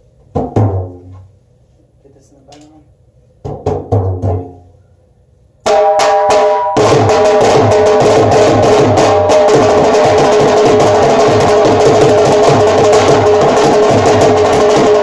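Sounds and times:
barrel drum played with sticks: 0:00.3 - 0:01.2, 0:03.4 - 0:04.7, 0:05.6 - 0:15.0.

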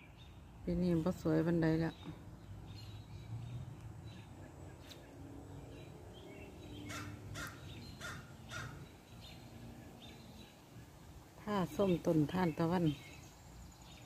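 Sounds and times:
crow cawing: 0:06.9 - 0:08.8.

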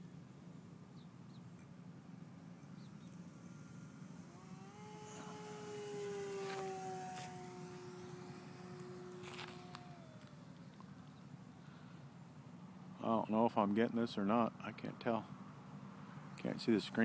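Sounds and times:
model plane motor whining: 0:02.4 - 0:12.0.

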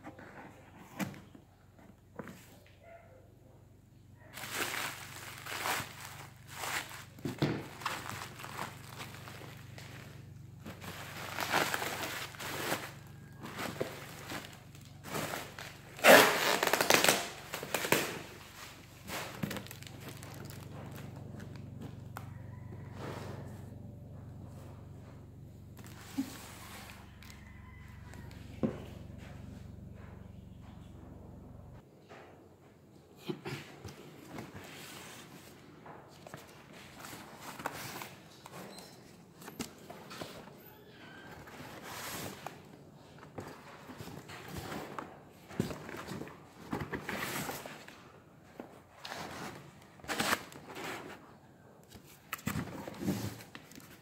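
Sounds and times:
bubble wrap rustling and crinkling: 0:04.2 - 0:22.0, 0:25.8 - 0:28.3.

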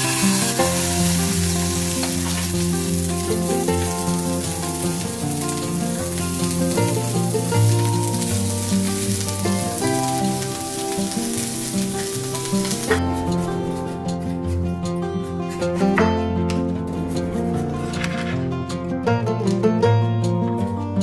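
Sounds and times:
fish sizzling in a skillet: 0:00.0 - 0:13.9
background music: 0:00.0 - 0:21.0.

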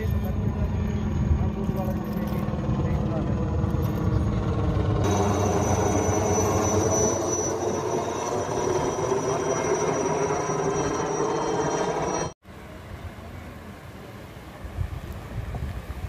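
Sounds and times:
helicopter rotor and engine: 0:00.0 - 0:12.4
high turbine whine: 0:00.0 - 0:12.4.

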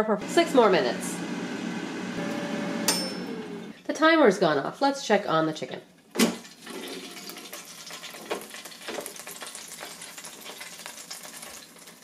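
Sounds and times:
chicken wings sizzling in grease: 0:07.4 - 0:12.0.

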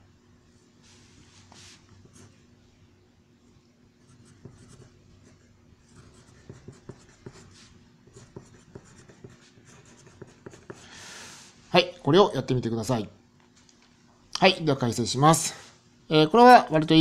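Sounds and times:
pencil scratching on paper: 0:04.0 - 0:10.9
pencil tapping: 0:04.3 - 0:04.9, 0:06.0 - 0:07.4, 0:08.0 - 0:10.8.

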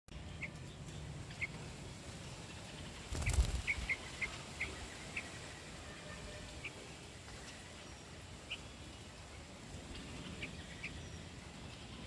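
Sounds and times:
fledgling bird chirping: 0:02.4 - 0:05.7, 0:07.8 - 0:12.0.

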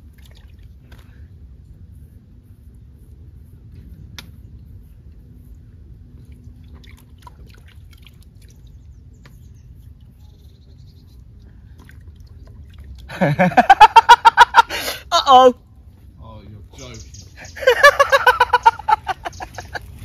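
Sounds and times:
man laughing loudly: 0:13.1 - 0:15.4, 0:17.4 - 0:20.0.

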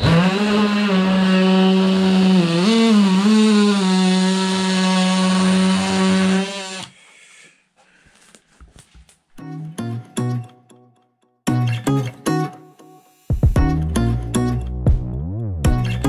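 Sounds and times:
oscillating multi-tool cutting: 0:00.0 - 0:07.0.

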